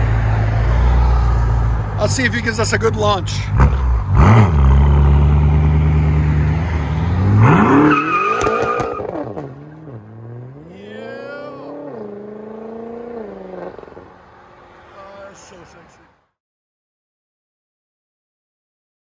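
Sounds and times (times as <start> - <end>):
car engine revving: 0.0 - 14.9.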